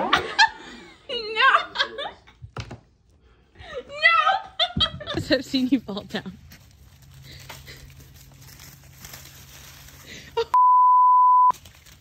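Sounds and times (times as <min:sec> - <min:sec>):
censor bleep: 0:10.6 - 0:11.5.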